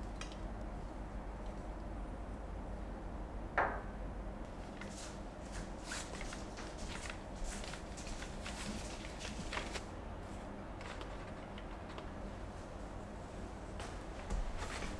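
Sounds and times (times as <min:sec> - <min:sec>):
single knock: 0:03.6 - 0:03.9.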